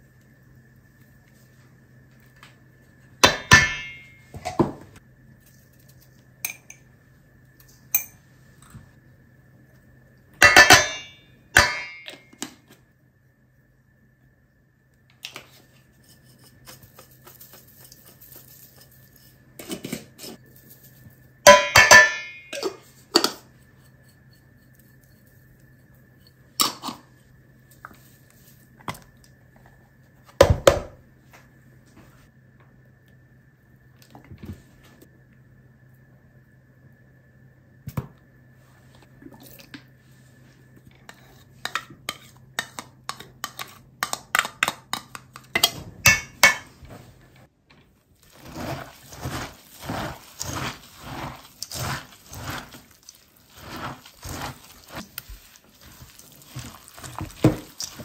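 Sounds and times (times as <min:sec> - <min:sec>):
glass jars clinking on steel bowl: 0:21.5 - 0:23.4.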